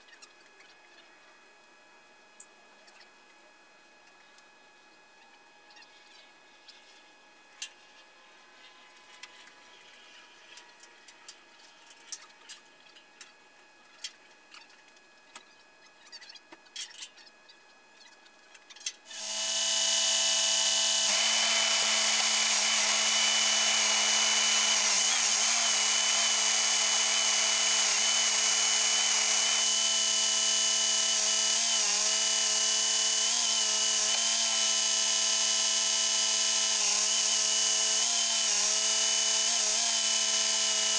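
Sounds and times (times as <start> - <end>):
truck engine and hydraulic pump whine: 19.1 - 40.9.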